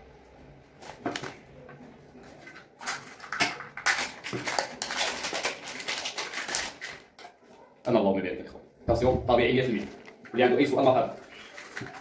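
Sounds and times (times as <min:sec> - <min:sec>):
plastic cup crinkling: 0:02.2 - 0:07.4, 0:09.3 - 0:12.0.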